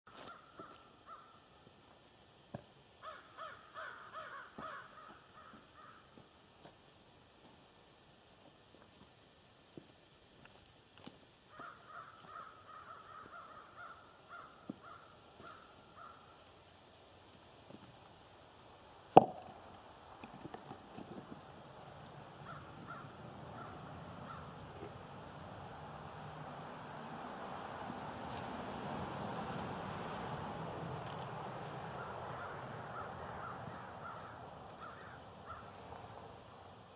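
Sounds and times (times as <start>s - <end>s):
bird calling: 3.0s - 6.3s, 11.5s - 16.4s, 22.4s - 24.6s, 31.9s - 36.0s
stone knocking on stone: 19.2s - 19.5s.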